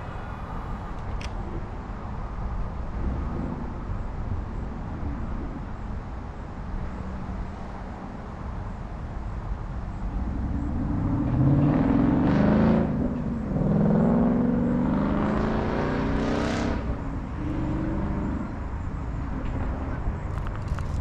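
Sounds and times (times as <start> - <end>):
car engine revving past: 10.5 - 18.7.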